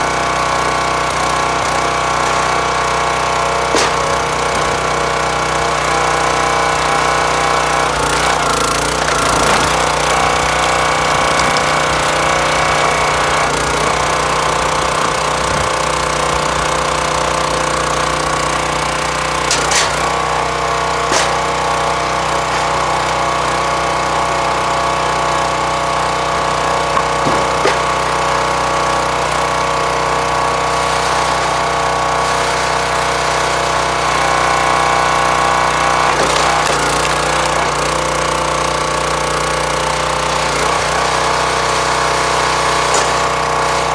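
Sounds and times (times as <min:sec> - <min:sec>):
small engine running: 0:00.0 - 0:43.9
wood cracking and splitting: 0:00.6 - 0:30.2, 0:34.2 - 0:43.9.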